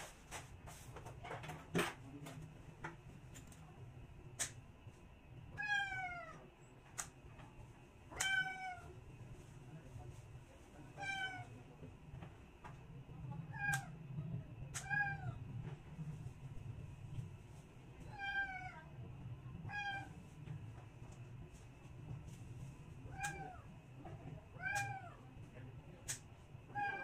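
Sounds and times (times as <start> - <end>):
cat meowing: 8.1 - 8.9.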